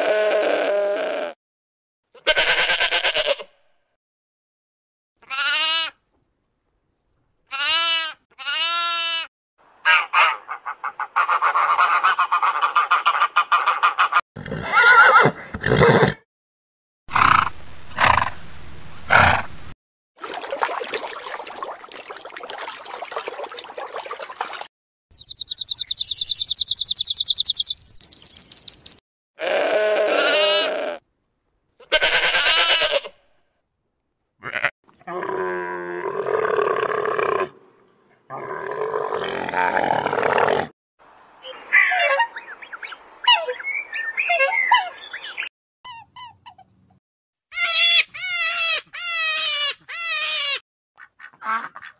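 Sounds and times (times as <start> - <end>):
falling pitched animal cries: 0.0 - 1.4, 29.4 - 31.0, 31.8 - 33.1, 47.5 - 50.6.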